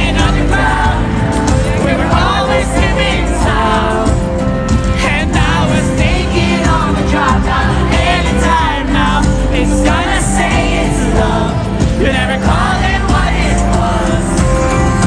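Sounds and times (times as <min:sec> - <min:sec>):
guitar and band playing: 0:00.0 - 0:15.0.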